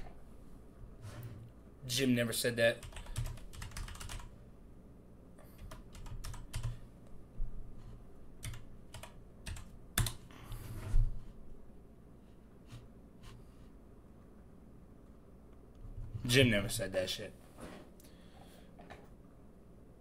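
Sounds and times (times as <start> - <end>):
typing on computer keyboard: 2.8 - 4.3, 5.6 - 6.8, 8.4 - 10.2.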